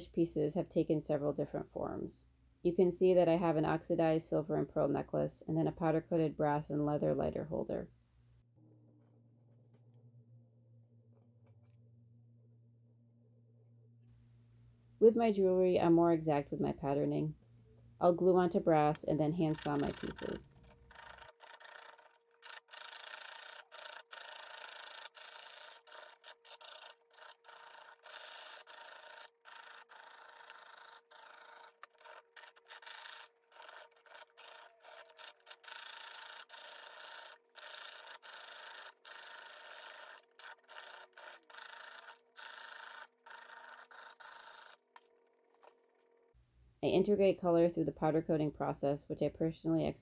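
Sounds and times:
saw rasping through metal: 19.5s - 44.8s.

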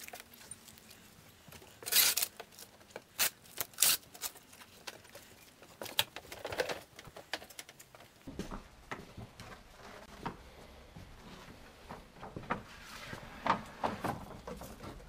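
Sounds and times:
wooden frames knocking and scraping: 6.3s - 15.0s.

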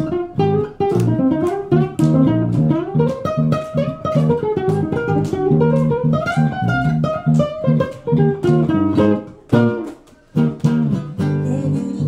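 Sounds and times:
guitars playing plucked notes: 0.0s - 12.0s.

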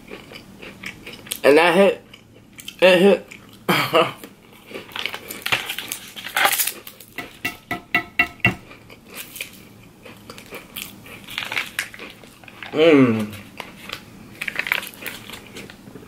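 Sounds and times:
mouth chewing cookie: 0.0s - 6.0s, 8.6s - 16.0s
foil pouch crinkling: 4.9s - 7.2s, 11.2s - 12.8s, 13.6s - 15.8s.

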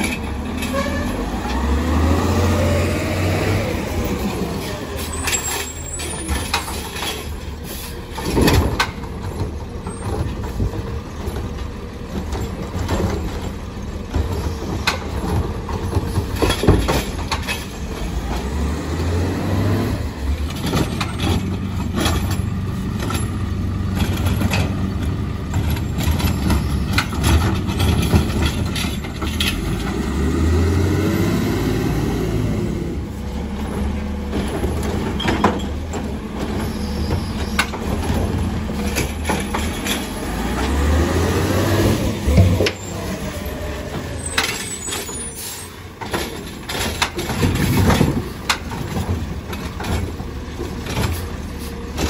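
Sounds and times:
truck engine revving: 0.0s - 6.7s, 17.8s - 46.0s
cart clunking: 0.0s - 52.0s.

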